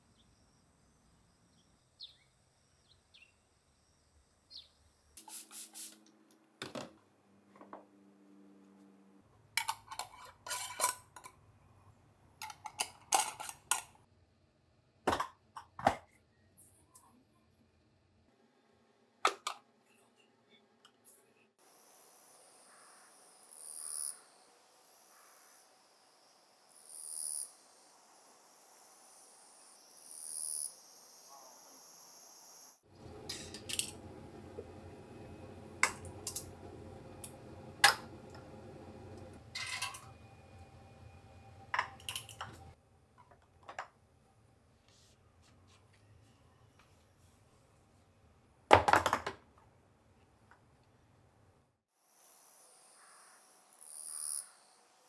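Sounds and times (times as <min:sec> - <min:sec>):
glass jars and metal lids clinking: 0:09.6 - 0:11.4, 0:12.4 - 0:14.0, 0:39.5 - 0:40.2, 0:41.7 - 0:42.8
gas stove rumble: 0:32.9 - 0:42.8.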